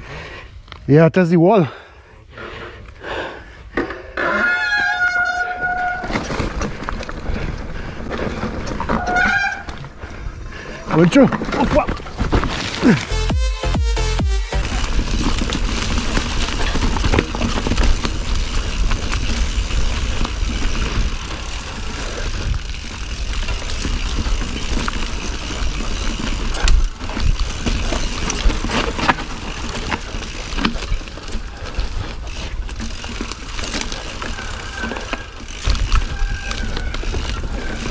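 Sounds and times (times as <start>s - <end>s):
bike tyre and wind rush: 1.8s - 13.3s, 14.5s - 37.9s
bike knocks and rattles: 14.5s - 37.9s.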